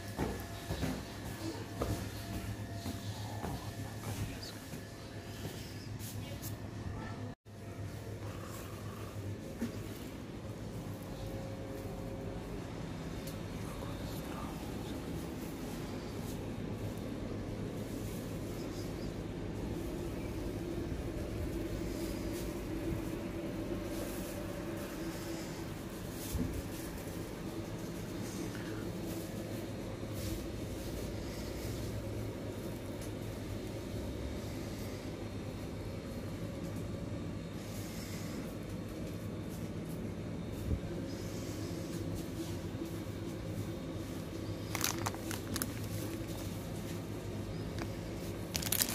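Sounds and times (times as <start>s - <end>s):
supermarket hum and rumble: 0.0s - 48.9s
cellophane crinkling: 44.2s - 48.9s.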